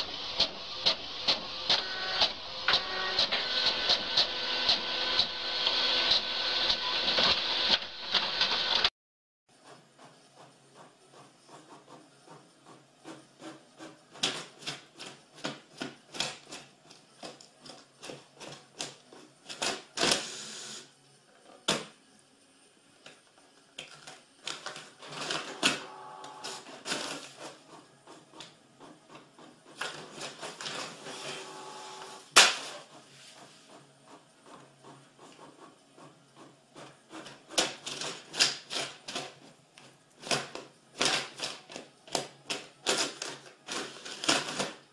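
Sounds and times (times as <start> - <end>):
printer clicks and clacks: 0.0 - 8.9, 9.6 - 20.3, 23.8 - 44.9
printer motor whirr: 0.0 - 8.9, 24.4 - 44.8.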